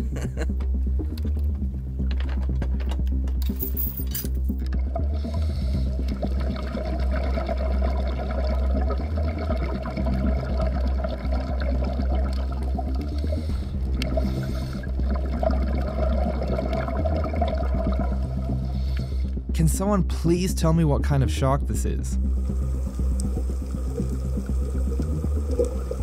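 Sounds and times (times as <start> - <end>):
underwater water rush: 4.7 - 19.3, 22.2 - 26.0.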